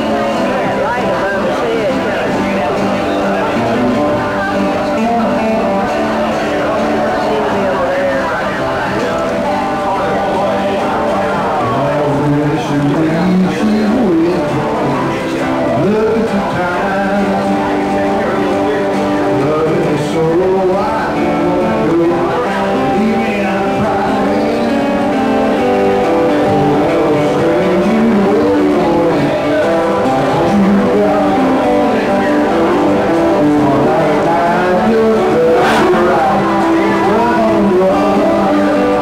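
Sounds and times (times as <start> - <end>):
acoustic guitars playing: 0.0 - 39.0.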